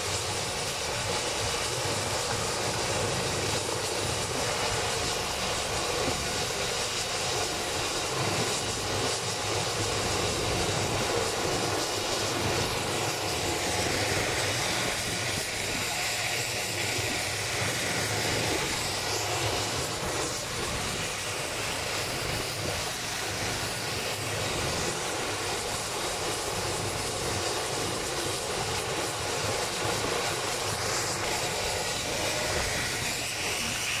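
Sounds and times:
helicopter hovering overhead: 0:00.0 - 0:34.0.

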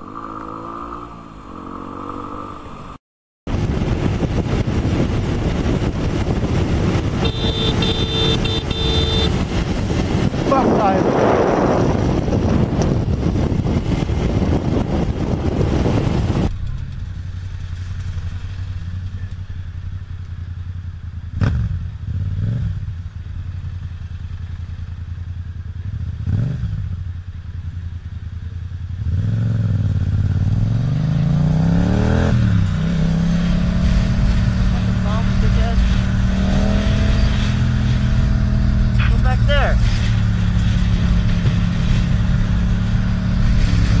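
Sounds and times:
motorcycle engine idling and revving: 0:00.0 - 0:44.0
wind rush over microphone: 0:03.5 - 0:16.6, 0:30.6 - 0:44.0.

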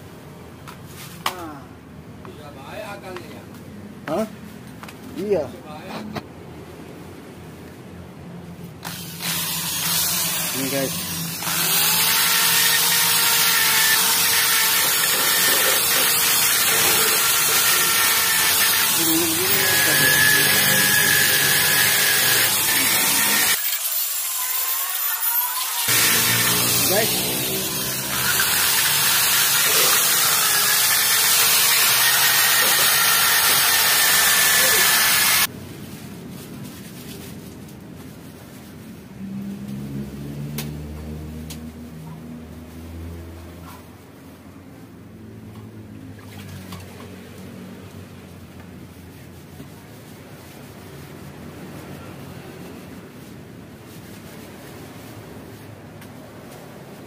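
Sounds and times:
drill attachment scrubbing metal: 0:08.8 - 0:35.5
electric drill motor hum: 0:08.8 - 0:35.5.

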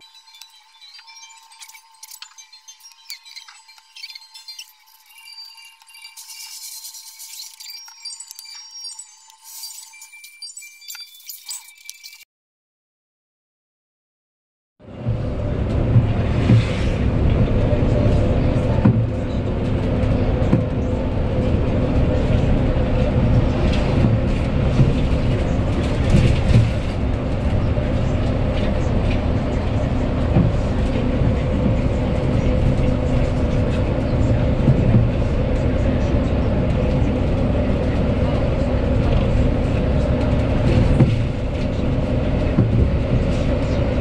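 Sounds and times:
bus engine and tyres droning: 0:14.8 - 0:44.0
bus body knocks and rattles: 0:15.1 - 0:21.0, 0:23.2 - 0:27.6, 0:34.5 - 0:35.4, 0:39.6 - 0:43.7.

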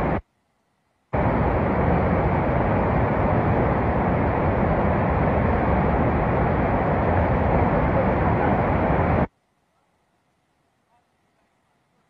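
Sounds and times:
flood torrent rushing: 0:01.2 - 0:09.3.

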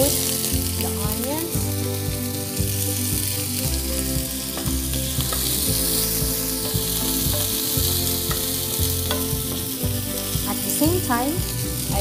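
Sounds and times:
onions sizzling in oil: 0:00.0 - 0:12.0
spatula tapping and scraping pan: 0:04.4 - 0:09.9.

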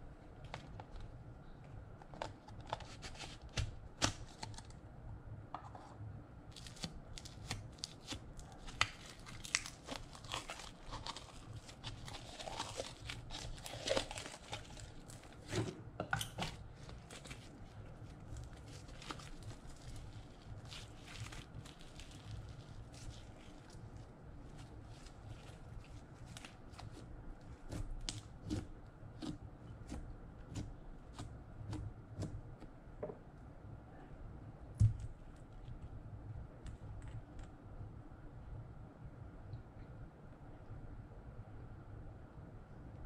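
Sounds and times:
slime crackling and popping: 0:06.6 - 0:15.5, 0:16.2 - 0:31.3.

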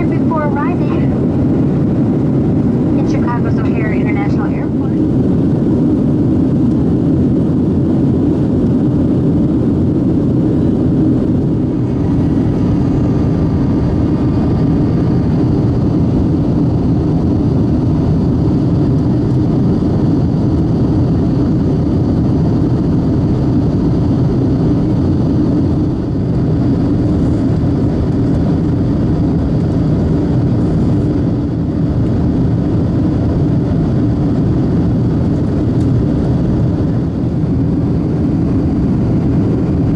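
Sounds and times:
jet engine cabin rumble: 0:00.0 - 0:39.9
faint high whine: 0:02.6 - 0:05.2.

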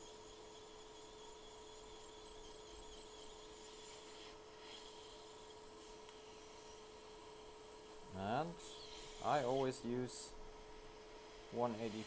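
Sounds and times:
metal tool scraping stencil: 0:00.0 - 0:05.2
faint steady hum: 0:00.0 - 0:12.0.

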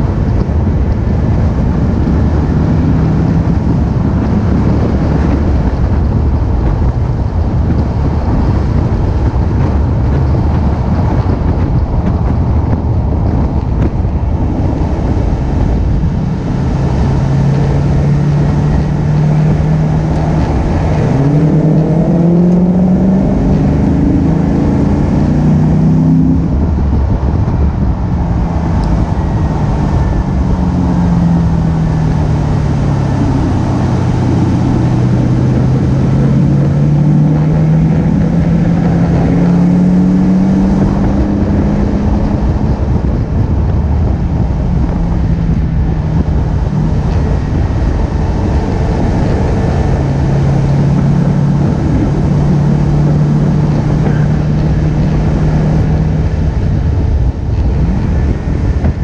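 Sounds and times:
car engine running: 0:00.0 - 0:59.0
road noise: 0:00.0 - 0:59.0
wind noise: 0:00.0 - 0:59.0.

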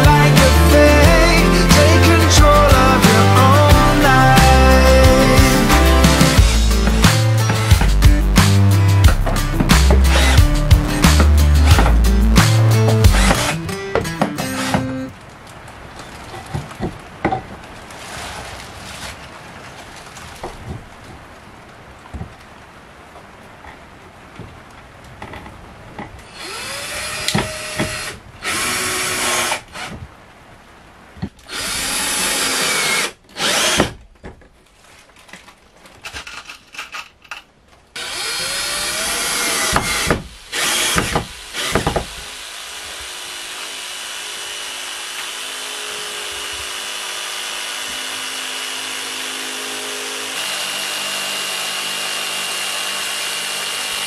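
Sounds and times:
jigsaw cutting wood: 0:00.0 - 0:15.0, 0:26.3 - 0:30.0, 0:31.5 - 0:34.0, 0:38.0 - 0:54.0
cordless drill driving screws: 0:09.9 - 0:10.5, 0:13.0 - 0:13.6, 0:26.3 - 0:29.9, 0:31.5 - 0:34.0, 0:38.0 - 0:54.0.

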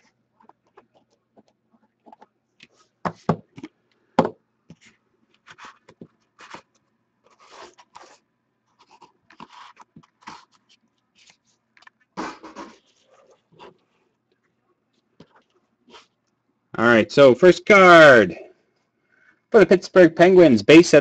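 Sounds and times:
cardboard and wrapper rustling: 0:04.7 - 0:14.0.

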